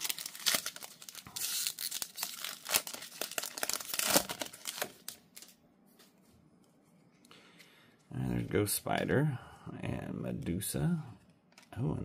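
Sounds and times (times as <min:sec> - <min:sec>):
card pack wrapper tearing: 0:00.0 - 0:05.5.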